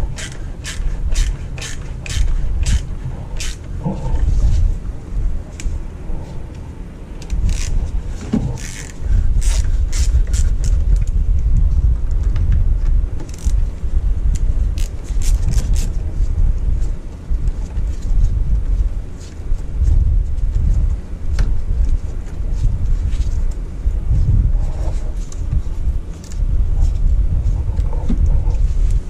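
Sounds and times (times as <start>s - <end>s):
clicks and scrapes of parts: 0.0s - 4.6s, 7.2s - 11.2s, 13.2s - 13.6s
low rumble: 0.0s - 29.0s.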